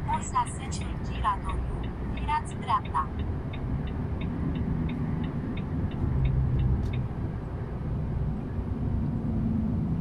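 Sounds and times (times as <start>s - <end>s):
vehicle engine and road rumble: 0.0s - 10.0s
light regular ticking: 0.6s - 7.3s.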